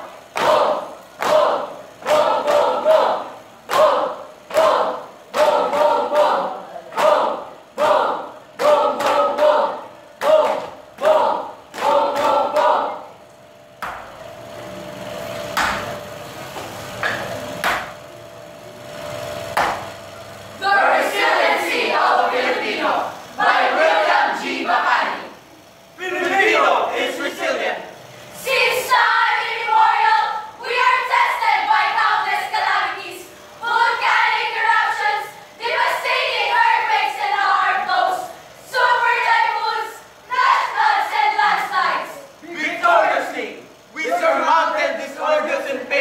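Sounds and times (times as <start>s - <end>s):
group singing in unison: 0.0s - 13.1s, 20.6s - 25.4s, 28.4s - 43.5s.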